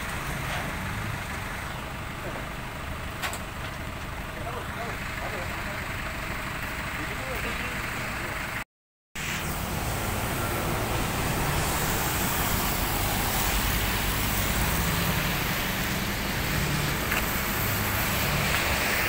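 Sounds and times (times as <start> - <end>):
passing vehicle engines: 9.2 - 19.0
tyre hiss on wet road: 9.2 - 19.0.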